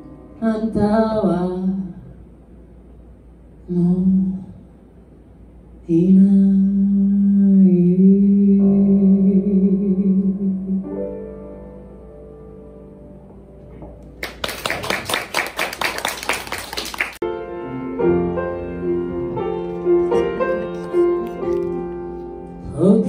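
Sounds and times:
piano playing: 0.0s - 1.8s, 8.3s - 23.0s
hands clapping: 14.0s - 17.2s.

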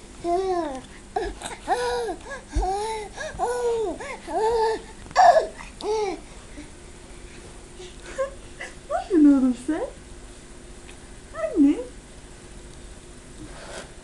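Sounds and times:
baby babbling: 0.2s - 6.2s.

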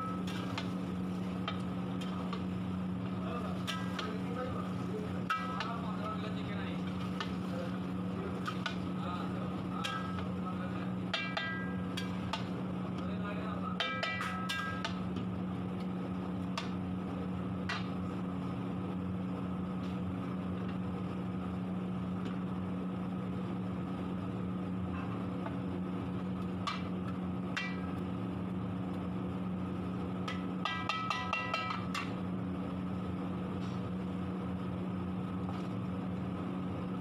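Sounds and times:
low mechanical hum: 0.0s - 37.0s
metal spatula clanking against pan: 3.6s - 4.2s, 5.2s - 5.8s, 9.7s - 10.4s, 11.1s - 12.5s, 13.7s - 15.0s, 26.6s - 26.9s, 27.5s - 28.0s, 30.3s - 32.2s.

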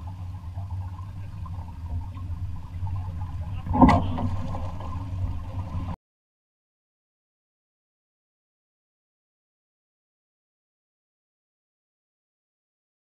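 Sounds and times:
wind and water rushing: 0.0s - 6.0s.

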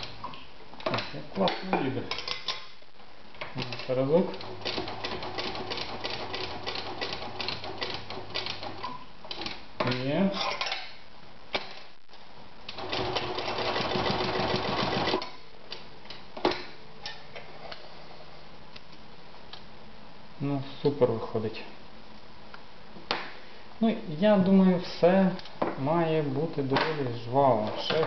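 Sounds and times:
sewing machine stitching leather: 3.6s - 9.5s, 12.7s - 15.3s.

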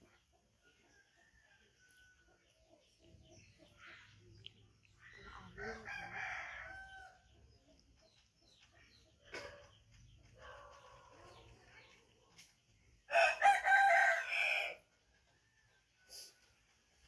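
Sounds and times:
rooster crowing: 5.6s - 7.2s, 13.1s - 14.8s.

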